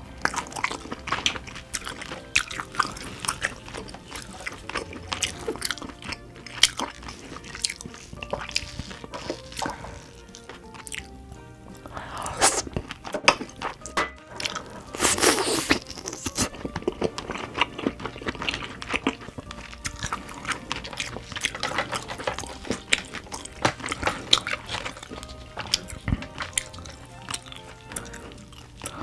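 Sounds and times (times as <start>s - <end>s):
crunching crab shell: 0.0s - 11.1s, 11.7s - 29.0s
chewing: 0.0s - 29.0s.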